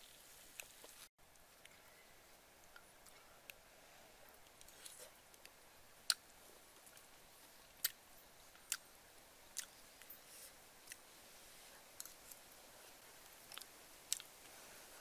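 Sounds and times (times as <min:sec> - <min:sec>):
person chewing food: 0:08.6 - 0:08.8, 0:09.5 - 0:11.0, 0:13.5 - 0:14.3.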